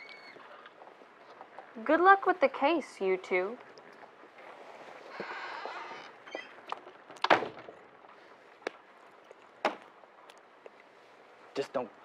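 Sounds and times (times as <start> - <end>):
door banging shut: 7.2 - 7.7.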